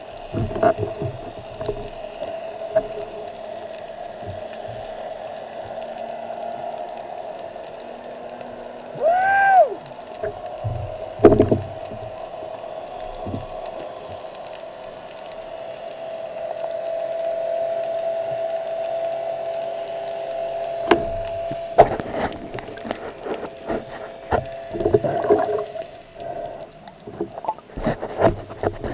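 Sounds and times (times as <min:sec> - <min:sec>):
underwater humming tone: 0:00.0 - 0:28.9
underwater clicks and knocks: 0:00.2 - 0:03.2, 0:10.2 - 0:12.2, 0:20.8 - 0:28.9.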